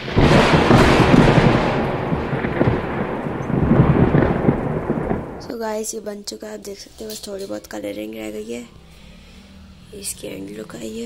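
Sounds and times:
thunder-like rumble: 0.0 - 5.9.

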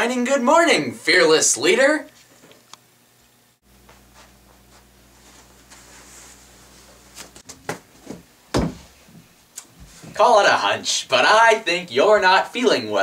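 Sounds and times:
faint steady hum: 0.0 - 13.0
footsteps on wooden stairs: 7.2 - 10.2.

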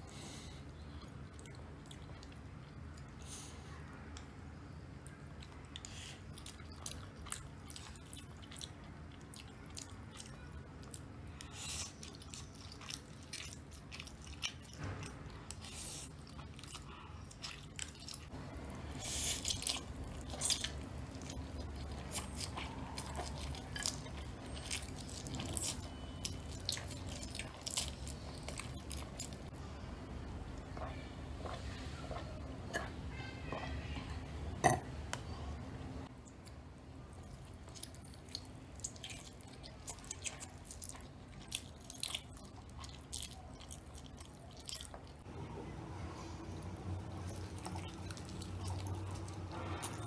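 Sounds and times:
chewing noodles: 0.6 - 3.2, 5.0 - 29.6, 36.4 - 45.3, 46.3 - 50.0.

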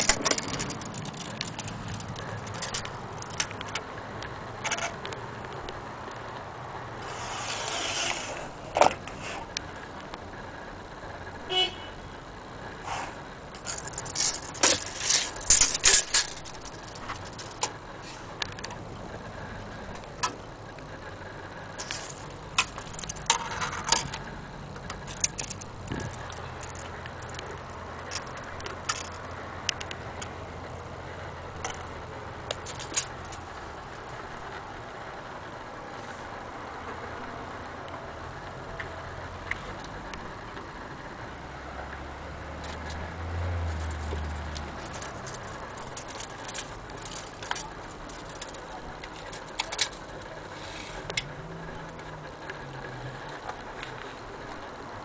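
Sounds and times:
tape measure blade rattling: 0.0 - 3.8, 7.0 - 9.4, 13.6 - 17.7, 21.8 - 24.2, 24.9 - 27.4, 32.5 - 33.4, 43.7 - 50.2.

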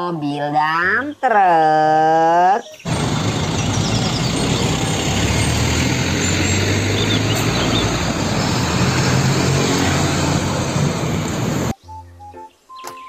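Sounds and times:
diesel truck engine hum: 2.8 - 11.7
tyre and traffic noise: 2.8 - 11.8.

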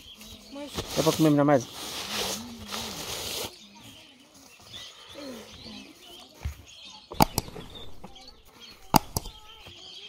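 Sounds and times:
birds chirping: 0.0 - 10.0
sharp clicks: 7.1 - 9.6.

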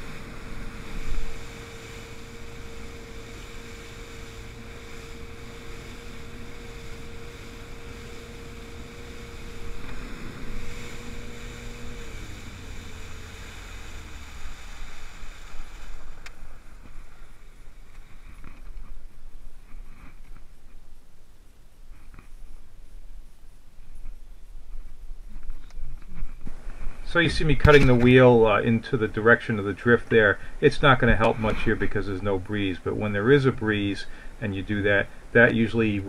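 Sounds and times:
boat engine running: 0.0 - 19.1, 26.5 - 36.0
water rushing along hull: 0.0 - 19.6, 26.5 - 36.0.

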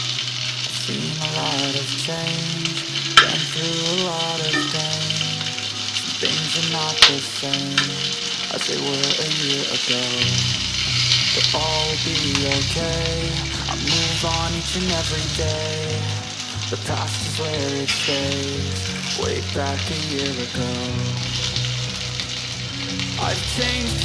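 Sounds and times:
frying in oil sizzle: 0.0 - 24.0
soft background music: 0.0 - 24.0
metal spoon clinking against pan: 4.5 - 5.1.

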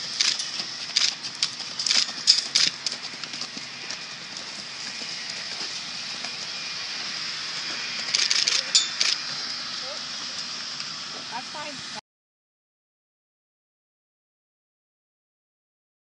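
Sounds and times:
hoofbeats on sandy dirt: 0.0 - 11.4.

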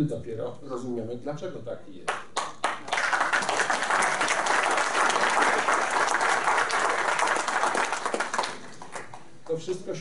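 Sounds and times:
audience applauding: 2.4 - 9.3.

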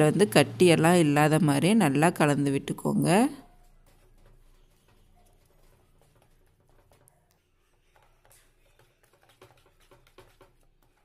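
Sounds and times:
whisk scraping plastic bowl: 3.0 - 11.0.

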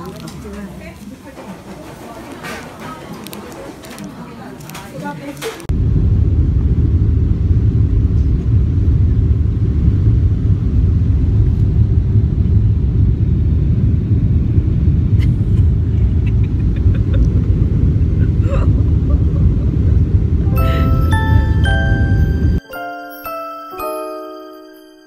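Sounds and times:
airliner cabin rumble: 5.6 - 22.6.

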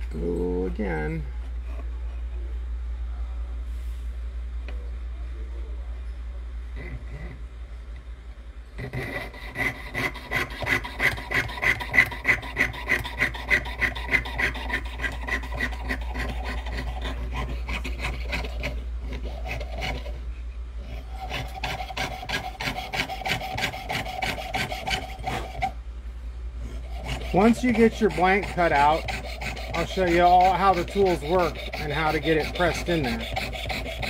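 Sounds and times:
saw rasping through metal: 8.8 - 20.2, 20.9 - 25.8, 26.6 - 34.0.

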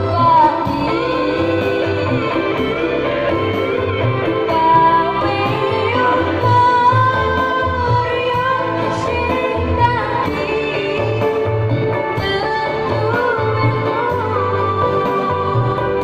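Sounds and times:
band playing pop music: 0.0 - 16.0
boy singing into a microphone: 0.0 - 16.0.

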